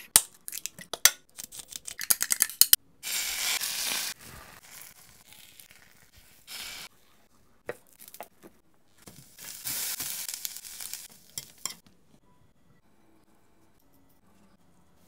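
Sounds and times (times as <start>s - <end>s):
vegetables sizzling in pan: 3.0s - 6.9s, 9.1s - 11.8s.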